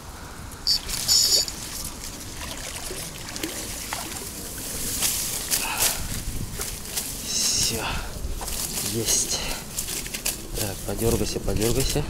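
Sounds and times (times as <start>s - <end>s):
water trickling and sloshing: 0.7s - 6.9s
small splashes: 0.8s - 5.6s.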